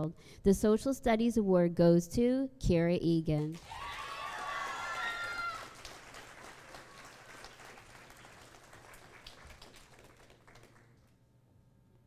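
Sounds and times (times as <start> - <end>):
high cheer: 3.5 - 10.9
audience applauding: 3.6 - 11.2.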